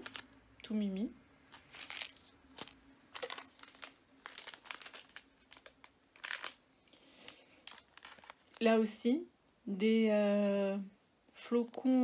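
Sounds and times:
plastic packaging crinkling: 0:00.0 - 0:00.4, 0:01.5 - 0:08.7.

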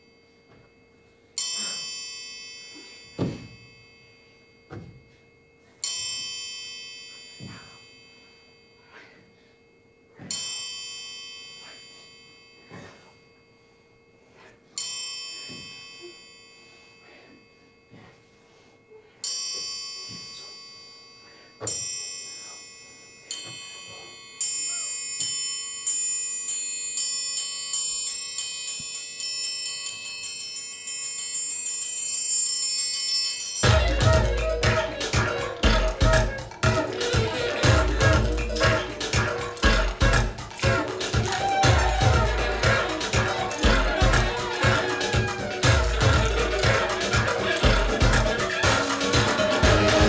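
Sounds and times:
bell-like struck tones: 0:00.0 - 0:31.4.

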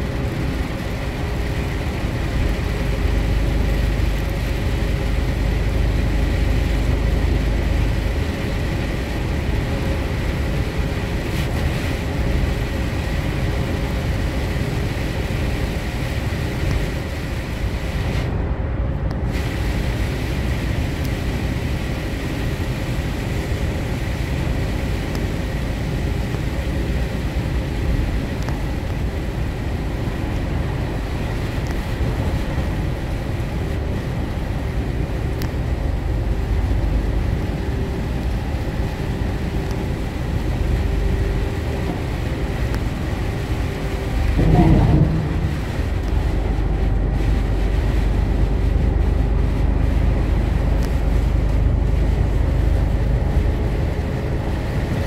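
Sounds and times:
engine and tyre rumble: 0:00.0 - 0:55.0
tyre hiss on wet road: 0:19.2 - 0:44.4, 0:45.2 - 0:55.0.

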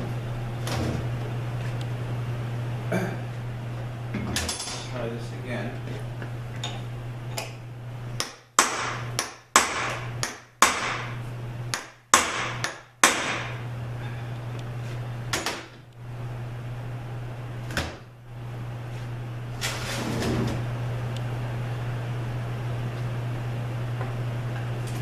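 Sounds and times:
steady low hum: 0:00.0 - 0:25.0
hammer striking metal: 0:11.7 - 0:13.6.

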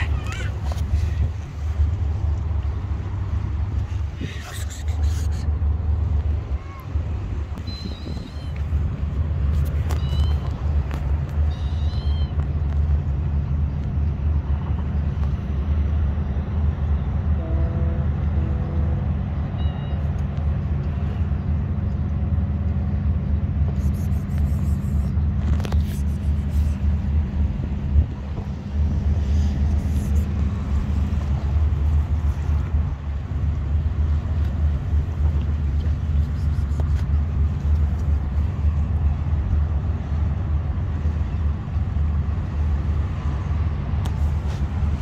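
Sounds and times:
loud low droning rumble: 0:00.0 - 0:45.0
faint short high calls: 0:11.4 - 0:12.4.

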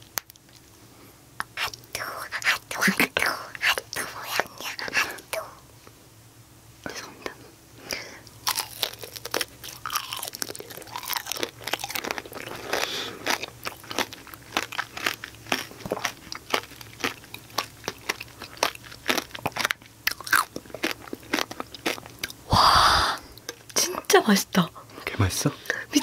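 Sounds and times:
sugar shell crunching: 0:08.3 - 0:22.5.

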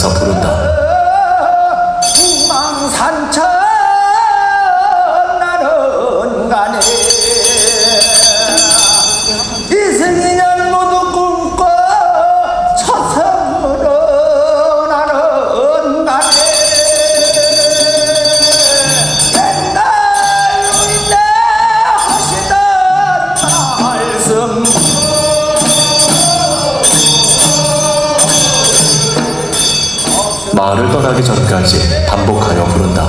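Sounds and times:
man chanting: 0:00.0 - 0:33.0
handbell ringing: 0:02.0 - 0:03.1, 0:06.8 - 0:10.2, 0:16.2 - 0:30.6.

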